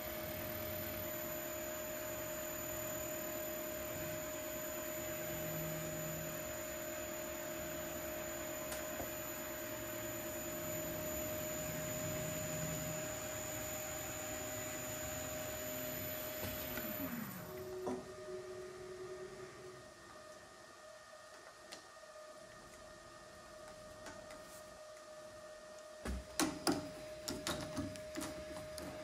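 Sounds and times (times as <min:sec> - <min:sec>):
wood lathe whining: 0:00.0 - 0:21.6.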